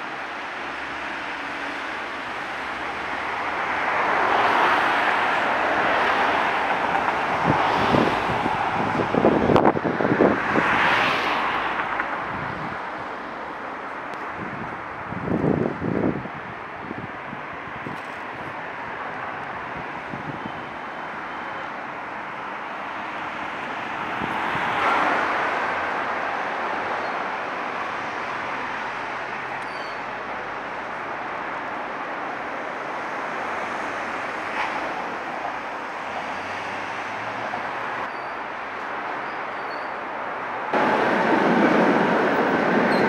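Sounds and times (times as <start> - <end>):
rail noise: 0.0 - 43.0
traffic noise: 0.0 - 43.0.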